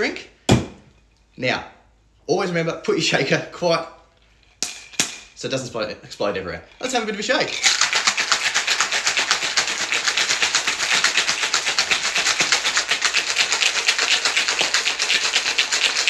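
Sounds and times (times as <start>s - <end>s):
ice rattling in cocktail shaker: 6.8s - 16.0s.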